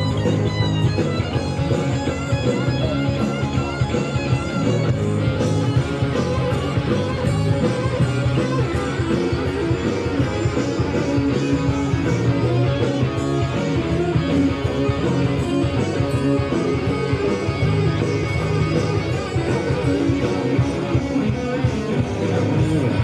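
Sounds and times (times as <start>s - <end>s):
live hard rock band: 0.0s - 23.0s.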